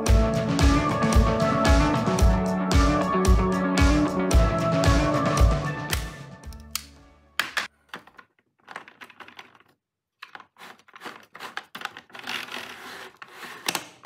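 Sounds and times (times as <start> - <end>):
music: 0.0 - 7.4
plastic gears clicking and clattering: 7.8 - 14.0.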